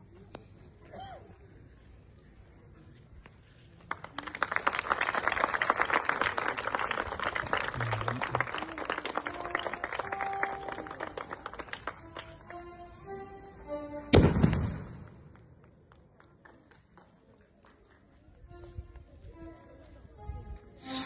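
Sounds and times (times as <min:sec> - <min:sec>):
crowd clapping and applauding: 0:03.9 - 0:12.8.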